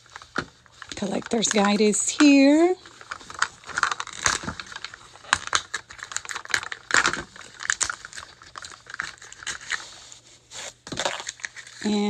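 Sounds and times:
wrapping crinkling: 0.0 - 12.0.

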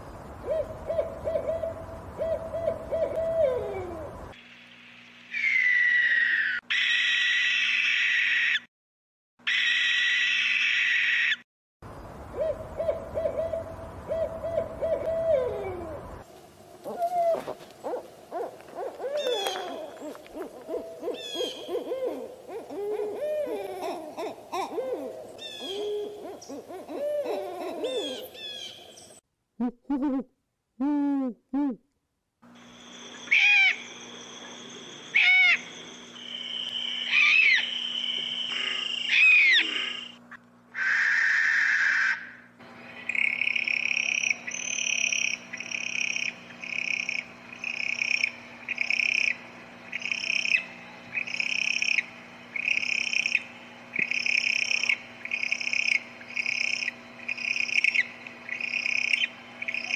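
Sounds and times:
steady background hum: 0.0 - 8.5, 11.8 - 29.2, 32.4 - 59.9
owls hooting: 0.4 - 4.3, 5.3 - 8.7, 12.3 - 16.2, 16.8 - 28.8, 33.1 - 35.8, 36.6 - 59.9
owl screech: 5.3 - 8.7, 9.4 - 11.4, 33.3 - 33.9, 35.1 - 35.7, 37.1 - 42.4.

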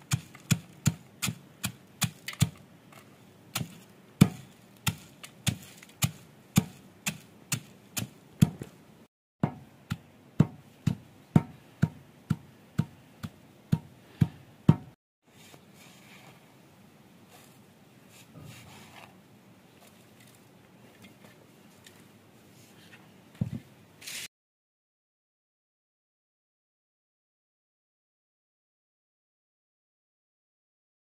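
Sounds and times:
stone pestle pounding in mortar: 0.0 - 2.6, 3.5 - 8.7, 9.4 - 15.0.

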